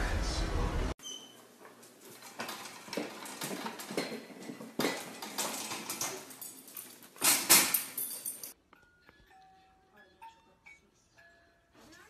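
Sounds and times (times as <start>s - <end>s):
metal baby gate rattling: 2.0s - 8.6s.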